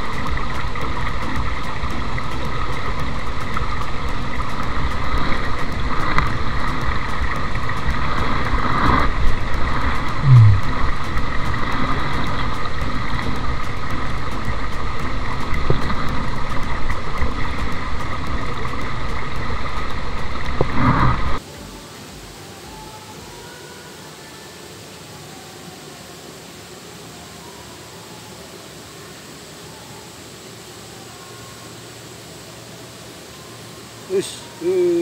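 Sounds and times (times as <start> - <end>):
low sound falling in pitch: 0.0 - 22.4
stream running over rocks: 0.0 - 35.0.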